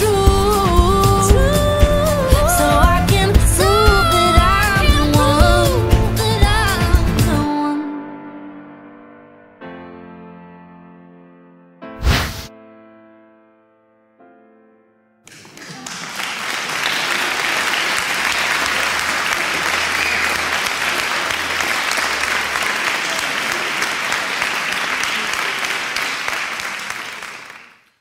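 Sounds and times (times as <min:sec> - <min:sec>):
audience applauding: 0:02.2 - 0:05.8, 0:15.3 - 0:28.0.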